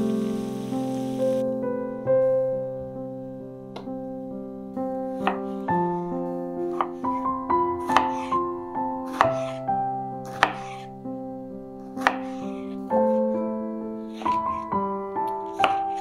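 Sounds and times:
gentle piano music: 0.0s - 16.0s
knife chopping on cutting board: 5.2s - 5.5s, 7.8s - 8.4s, 9.1s - 9.6s, 10.3s - 10.9s, 12.0s - 12.4s, 14.2s - 14.7s, 15.4s - 16.0s.

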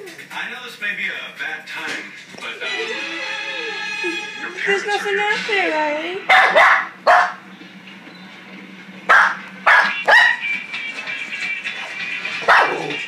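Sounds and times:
small dog barking: 6.3s - 7.4s, 9.1s - 10.4s, 12.5s - 13.0s.

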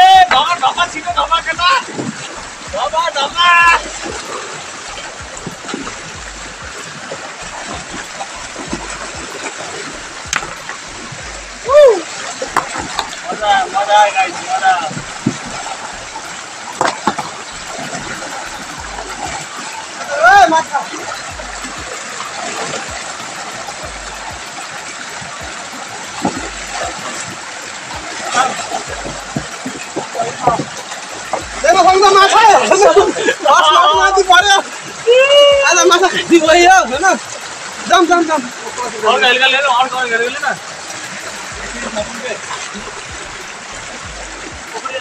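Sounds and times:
river rushing: 0.0s - 45.0s
low rumbles: 0.8s - 13.4s, 14.9s - 20.0s, 20.8s - 22.2s, 23.0s - 24.4s, 28.0s - 30.0s, 31.1s - 32.3s, 40.6s - 44.7s.

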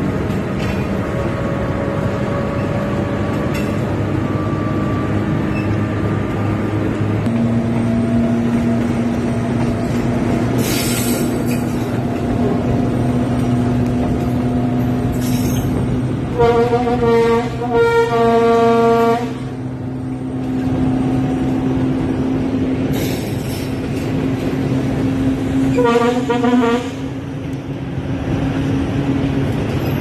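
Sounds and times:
locomotive engine drone: 0.0s - 30.0s
locomotive horn blasts: 16.2s - 19.7s, 25.6s - 27.2s.

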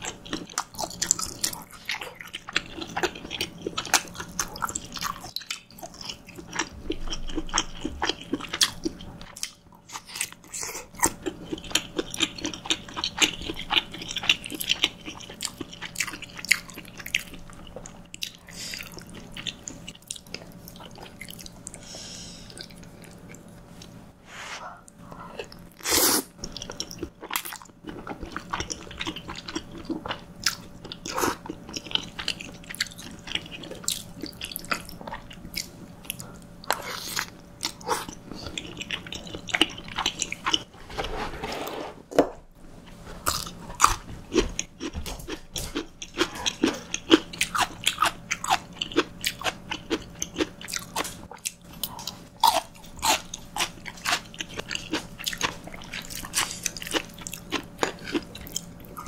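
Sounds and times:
wet chewing: 24.9s - 40.7s, 43.2s - 59.0s.

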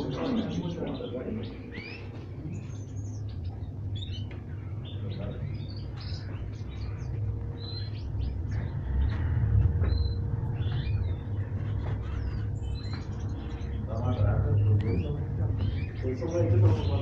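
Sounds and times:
canaries chirping: 0.0s - 17.0s
low background rumble: 0.0s - 17.0s.

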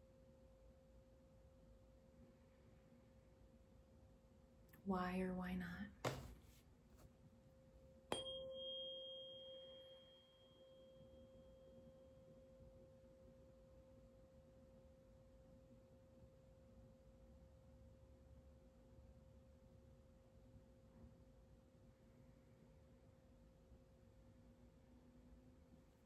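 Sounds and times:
tuning fork strike click: 8.1s - 12.0s
tuning fork ringing tone: 8.1s - 16.5s.

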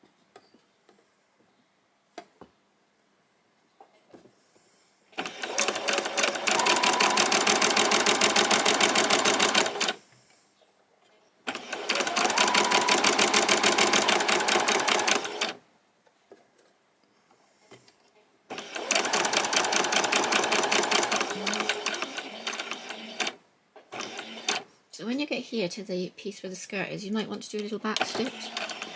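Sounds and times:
sewing machine stitching: 5.2s - 10.0s, 11.5s - 15.6s, 18.5s - 24.6s, 28.0s - 28.9s.

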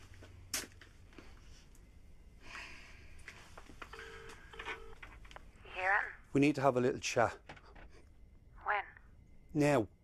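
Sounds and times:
telephone ringback tone: 3.9s - 5.0s.

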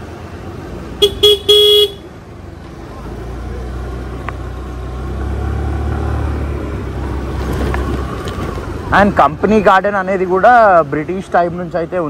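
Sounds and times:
low vehicle rumble: 0.0s - 12.0s
vehicle horn honking: 1.0s - 2.1s.

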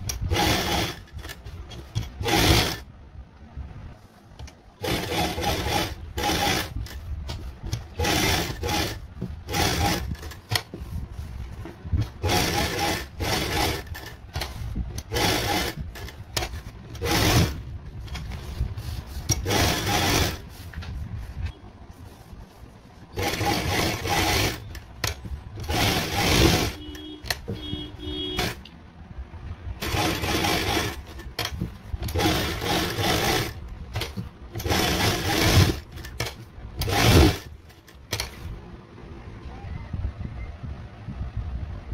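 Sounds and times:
sewing machine stitching: 0.0s - 2.9s, 4.4s - 10.8s, 11.5s - 20.8s, 23.1s - 28.7s, 29.8s - 38.5s.

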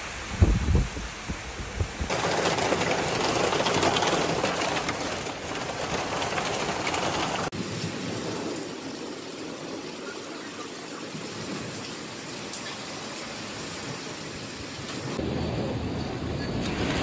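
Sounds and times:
hail clattering on patio and lawn: 1.8s - 15.2s.

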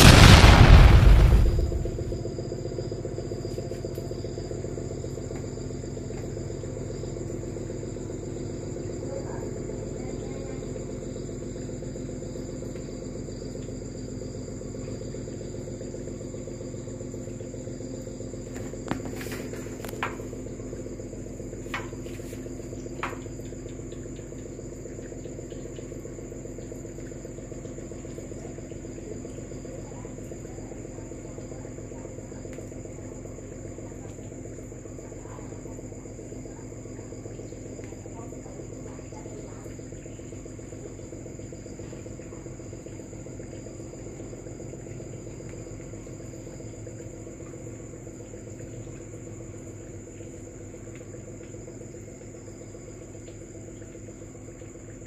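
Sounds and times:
distant thunder rumble: 0.0s - 2.4s
low steady drone: 0.0s - 2.4s
crickets trilling: 0.0s - 55.0s.

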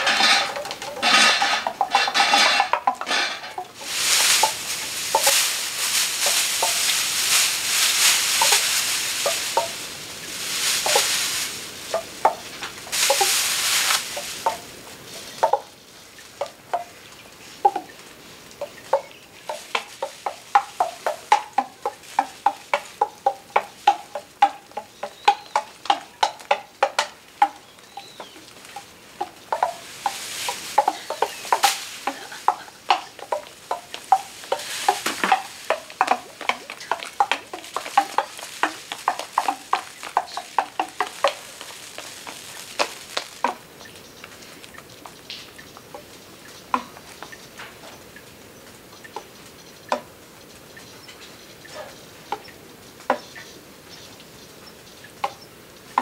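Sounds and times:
small hard objects clicking on string: 0.0s - 14.8s, 17.6s - 47.4s
rustling hiss: 0.0s - 56.0s.

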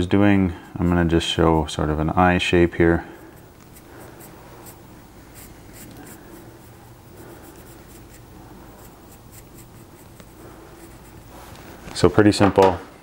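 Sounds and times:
pencil scratching on wood: 0.0s - 2.0s, 3.1s - 11.4s.

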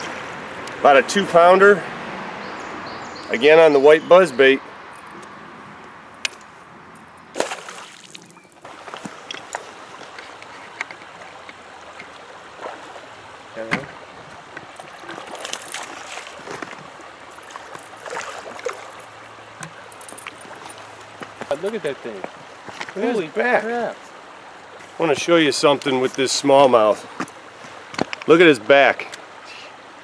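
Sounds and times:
river water splashing: 0.0s - 30.0s
fish thrashing in water: 7.3s - 10.2s, 14.4s - 21.1s.

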